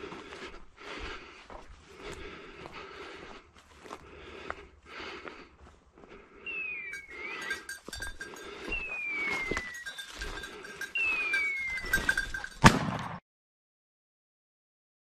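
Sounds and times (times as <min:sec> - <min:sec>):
falling whistled beeper cries: 0:06.5 - 0:07.8, 0:08.6 - 0:10.2, 0:10.8 - 0:12.4
shotgun shot: 0:12.6 - 0:13.2.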